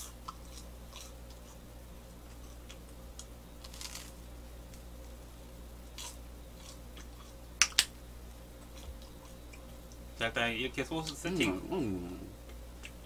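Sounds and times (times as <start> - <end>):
toast crunching: 2.2 - 5.2, 5.9 - 8.0.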